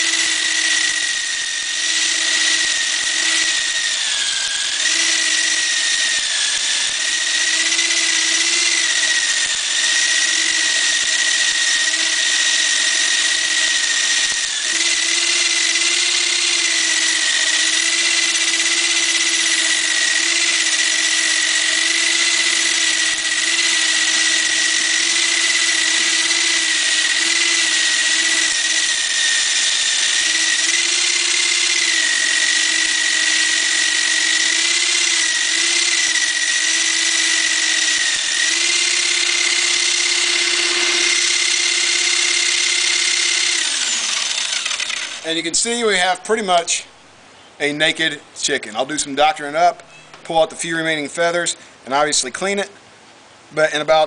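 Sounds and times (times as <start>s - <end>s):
electric drill whining: 0.0s - 45.5s.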